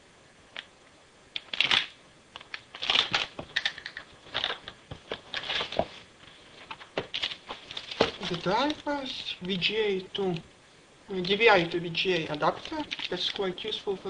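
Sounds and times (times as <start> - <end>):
cardboard packaging rustling: 2.5 - 9.4, 11.2 - 13.7
metallic bag crinkling: 2.7 - 4.7, 12.4 - 13.4.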